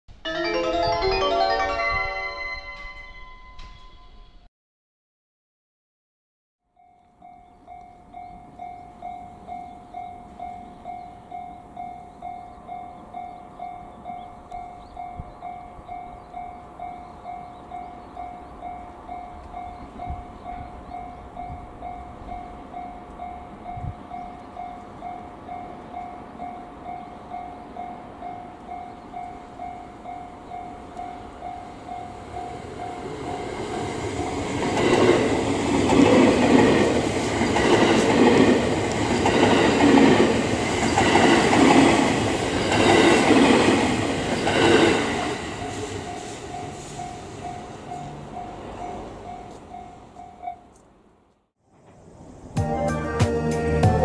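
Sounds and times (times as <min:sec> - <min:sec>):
electric train passing: 0:00.3 - 0:04.2, 0:07.0 - 0:54.0.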